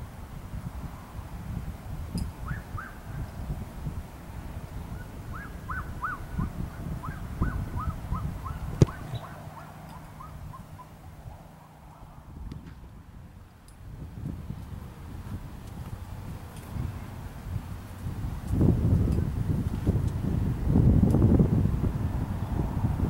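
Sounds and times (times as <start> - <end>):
wind buffeting microphone: 0.0 - 23.0
bird calling quick notes: 5.0 - 11.0
football kicked thud: 8.8 - 9.2.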